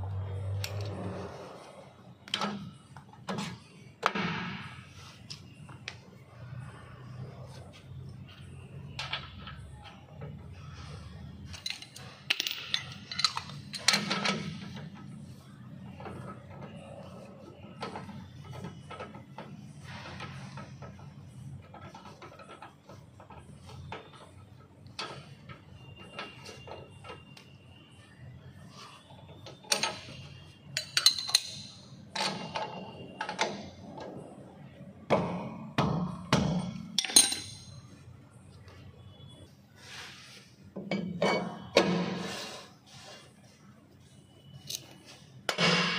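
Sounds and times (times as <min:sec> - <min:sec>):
metal tools clinking: 0:11.4 - 0:14.8, 0:29.5 - 0:33.7, 0:36.6 - 0:37.9
steel bar clinking on metal: 0:37.0 - 0:37.8.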